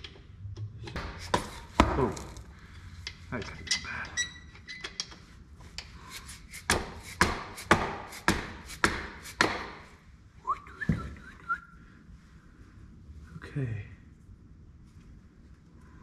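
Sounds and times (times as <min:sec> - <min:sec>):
sharp knocks on hard object: 0:01.0 - 0:02.2, 0:06.7 - 0:09.9.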